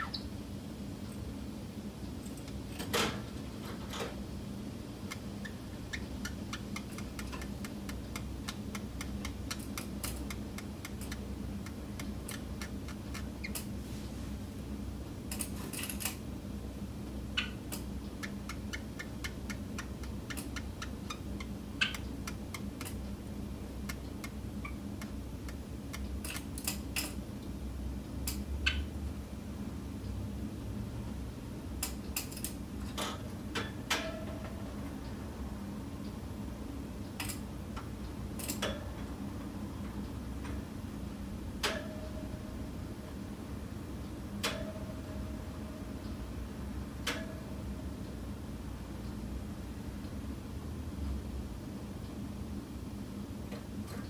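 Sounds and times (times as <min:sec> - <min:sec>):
low room hum: 0:00.0 - 0:54.0
small clicks and ticks: 0:06.3 - 0:13.7.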